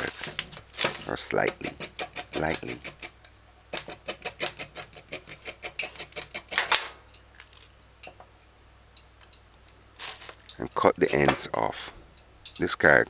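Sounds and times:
knife scraping carrot skin: 0.9 - 3.1.

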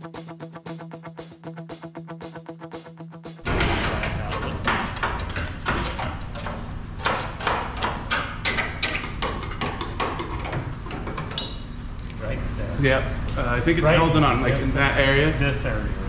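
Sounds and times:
knocking and clattering on metal: 3.4 - 11.6.

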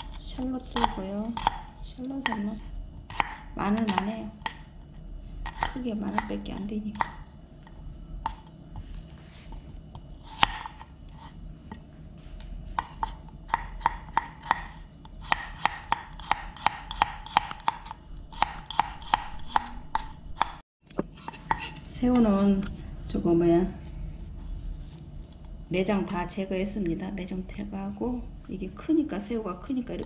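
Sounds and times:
knife chopping on wooden board: 0.8 - 4.6, 5.4 - 7.2, 9.9 - 11.4, 12.8 - 20.6.

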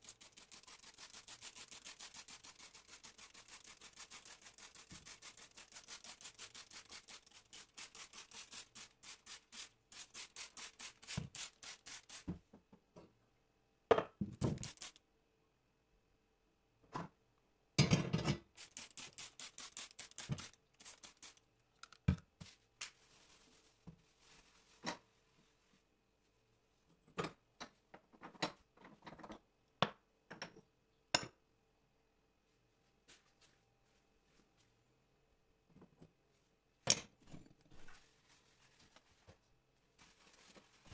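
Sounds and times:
quick cleaning strokes: 0.0 - 12.3, 14.5 - 15.0, 18.6 - 21.4
spray bottle hisses: 14.4 - 15.0, 18.6 - 21.4.

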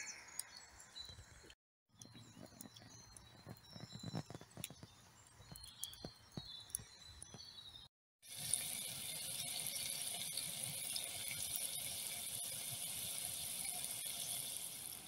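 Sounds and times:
faint birdsong: 0.0 - 7.9.

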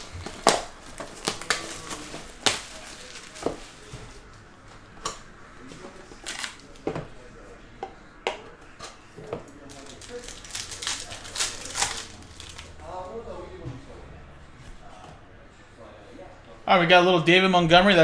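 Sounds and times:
shrink wrap crinkling: 0.0 - 4.3, 9.5 - 13.2.

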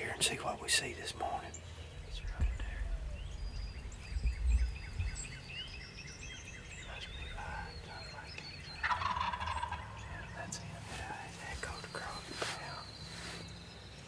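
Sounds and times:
low thumps: 2.0 - 5.9
turkey gobbling: 8.8 - 10.0.

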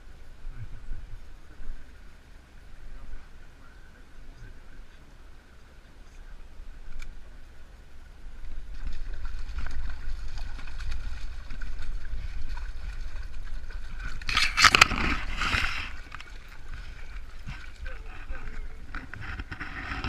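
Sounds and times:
stream running: 0.0 - 20.0
fish splashing: 8.4 - 20.0.

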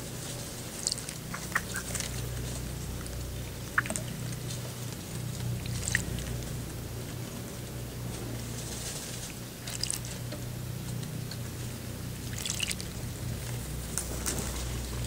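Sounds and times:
steady low hum: 0.0 - 15.0
bird splashing in water: 3.0 - 4.5, 5.3 - 6.4, 9.6 - 10.1, 12.2 - 13.0.

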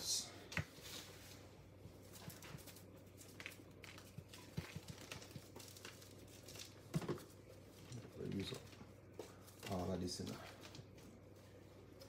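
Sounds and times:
plastic seasoning shaker ticking: 2.3 - 7.4.

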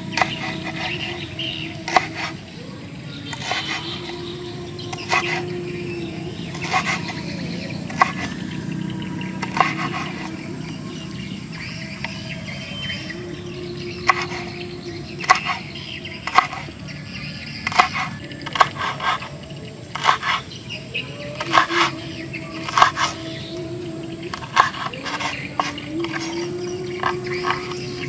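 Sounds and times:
outdoor background noise: 0.0 - 28.0
cleaver chopping on wooden board: 0.1 - 1.2, 1.8 - 2.4, 3.3 - 4.1, 4.9 - 5.4, 6.5 - 7.2, 7.9 - 8.5, 9.4 - 10.4, 14.0 - 14.5, 15.2 - 16.7, 17.6 - 19.3, 20.0 - 20.4, 21.4 - 21.9, 22.6 - 23.2, 24.3 - 26.4.

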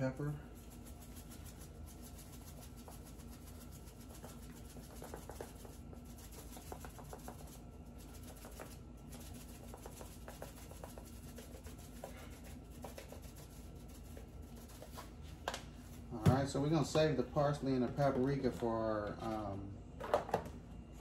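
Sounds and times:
low room hum: 0.0 - 21.0
spice shaker rattling: 0.6 - 15.0.

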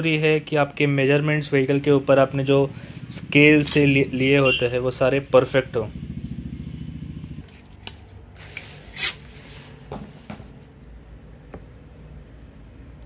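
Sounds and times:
paper rustling: 7.4 - 10.8
sticker sheet scraping on glass: 8.4 - 9.9.

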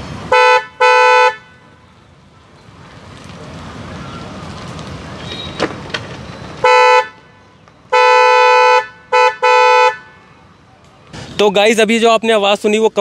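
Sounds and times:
car horn blast: 0.3 - 1.8, 6.6 - 7.2, 7.9 - 10.2.

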